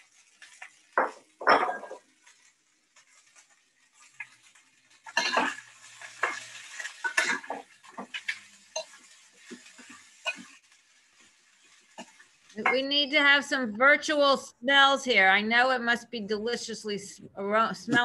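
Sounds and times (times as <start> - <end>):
spatula scraping wok: 2.2 - 12.8.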